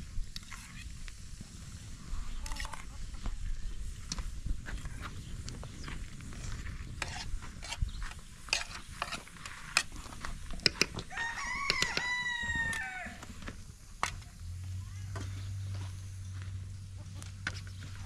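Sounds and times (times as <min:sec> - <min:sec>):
sharp clicks and knocks: 0:10.5 - 0:12.1
rooster crowing: 0:11.1 - 0:13.3.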